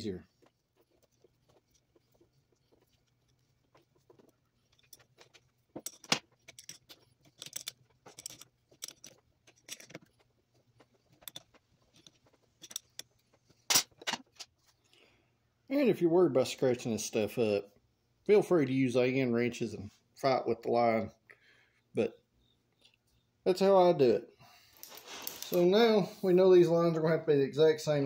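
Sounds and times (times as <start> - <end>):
metal tools clinking: 4.6 - 10.2, 11.1 - 14.4, 24.7 - 25.8.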